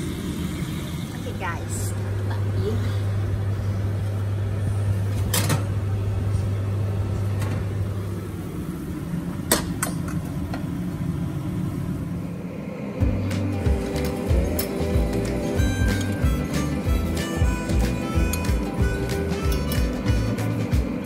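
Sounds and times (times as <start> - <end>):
appliance electrical hum: 0.0 - 21.0.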